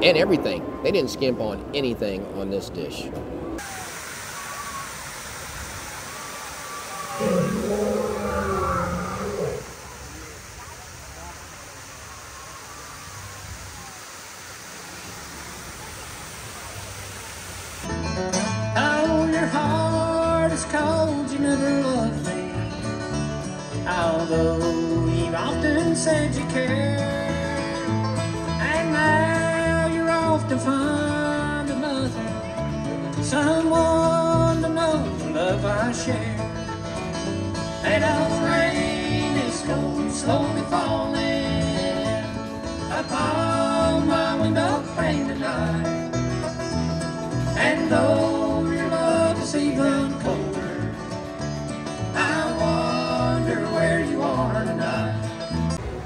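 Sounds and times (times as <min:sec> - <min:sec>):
water splashing down waterfall: 0:03.6 - 0:08.1, 0:09.6 - 0:17.9
bluegrass band playing and singing: 0:17.9 - 0:56.0.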